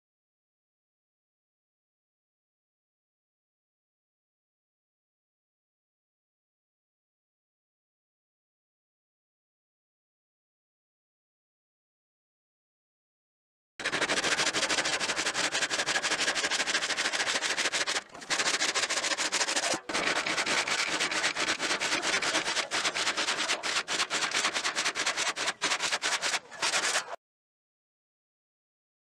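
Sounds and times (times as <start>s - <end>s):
rasping rubbing scrape: 13.8s - 27.2s.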